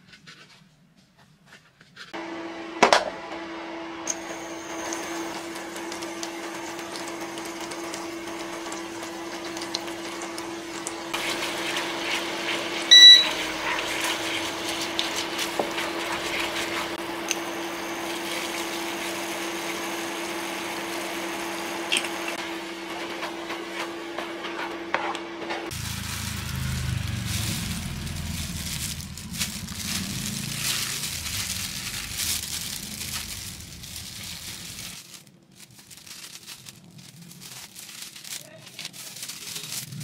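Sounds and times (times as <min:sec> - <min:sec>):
butter sizzling in a pan: 0:04.4 - 0:22.4
wooden spatula scraping a pan: 0:11.2 - 0:17.0
loud beep: 0:12.9 - 0:13.4
low hum: 0:25.7 - 0:35.0.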